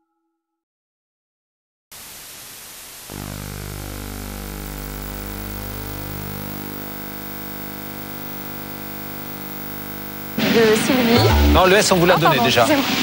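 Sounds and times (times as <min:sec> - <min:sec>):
tape static hiss: 0:02.0 - 0:13.0
buzzing hum: 0:03.1 - 0:12.3.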